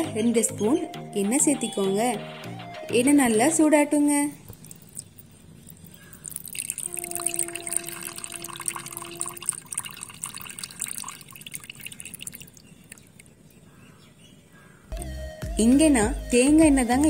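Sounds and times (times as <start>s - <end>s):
water trickling into bowl: 4.4s - 13.6s.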